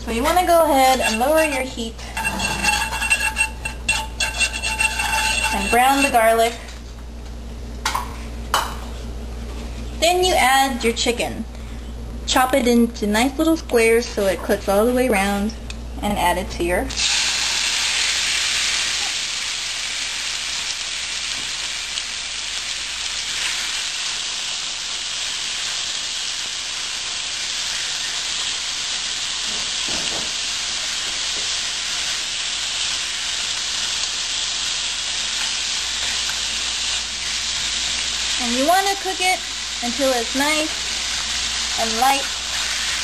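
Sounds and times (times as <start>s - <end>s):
chicken sizzling in a wok: 0.0s - 6.6s, 16.9s - 43.0s.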